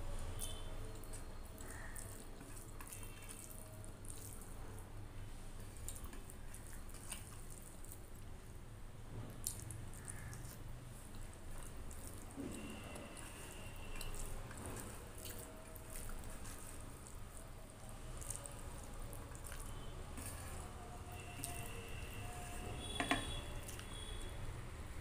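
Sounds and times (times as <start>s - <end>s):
fingers squishing rice: 0.4s - 4.6s, 9.3s - 24.3s
chewing with lip smacks: 0.4s - 4.9s, 5.6s - 8.3s, 9.2s - 24.3s.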